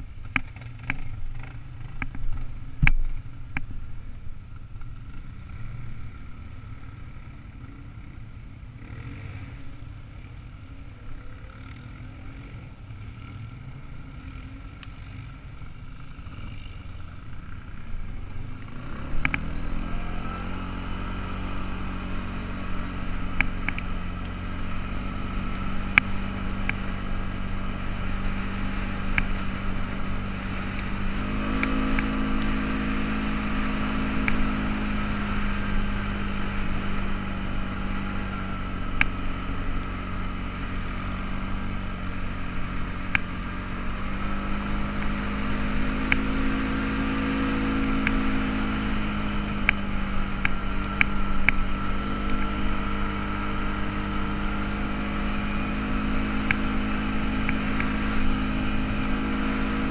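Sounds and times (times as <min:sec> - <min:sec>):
tires rolling over gravel: 0:14.7 - 0:59.9.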